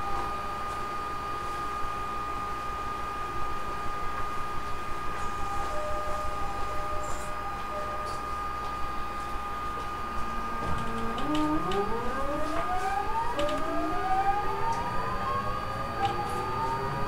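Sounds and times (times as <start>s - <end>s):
electric train motor whine: 0.0s - 17.0s
steady high tone: 5.2s - 9.6s, 10.2s - 17.0s.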